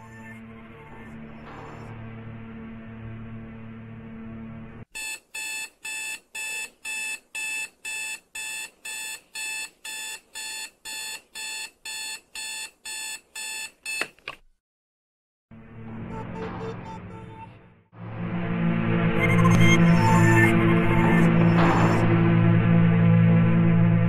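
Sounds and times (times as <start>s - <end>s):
music: 0.0s - 4.9s, 15.5s - 24.0s.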